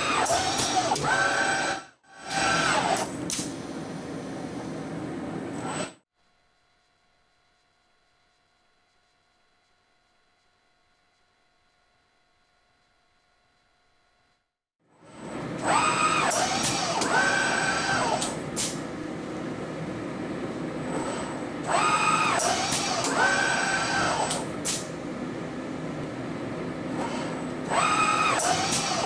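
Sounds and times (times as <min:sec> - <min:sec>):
robot arm motors whining: 0:00.0 - 0:03.2, 0:15.0 - 0:18.4, 0:20.9 - 0:24.8, 0:26.9 - 0:29.0.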